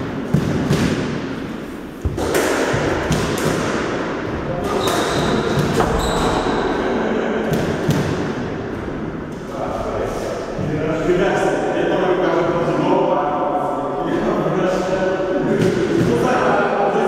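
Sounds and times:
squash ball thuds: 0.0 - 1.4, 2.0 - 6.5
high shoe squeaks: 4.7 - 6.6.

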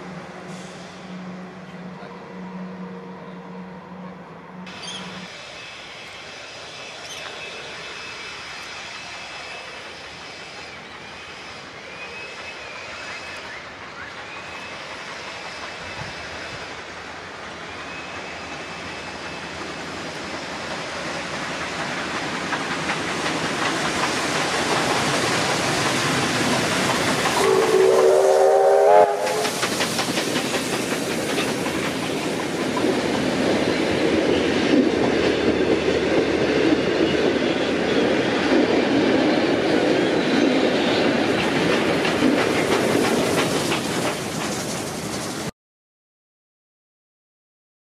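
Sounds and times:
steam train rumble: 0.0 - 45.5
train whistle rising in pitch: 0.4 - 5.3, 27.4 - 29.6
carriages clattering over rail joints: 19.3 - 27.9, 29.2 - 45.4.

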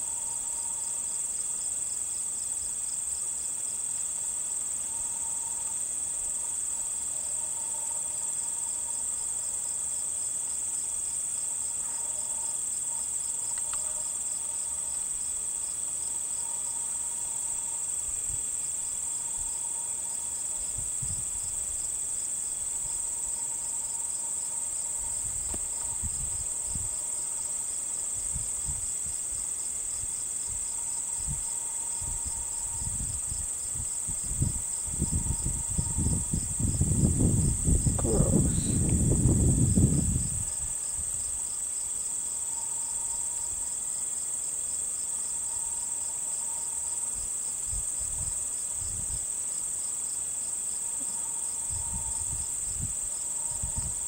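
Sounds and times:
insects trilling: 0.0 - 54.0
pulsing insect chirp: 0.0 - 54.0
low microphone rumbles: 34.4 - 40.4.

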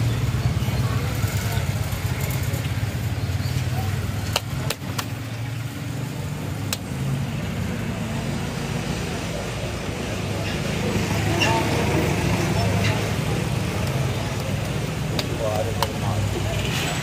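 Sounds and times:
street traffic: 0.0 - 17.0.

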